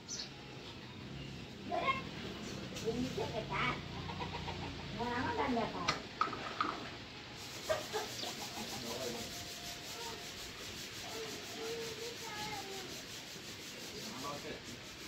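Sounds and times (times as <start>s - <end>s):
scratchy rubbing: 7.4s - 15.0s.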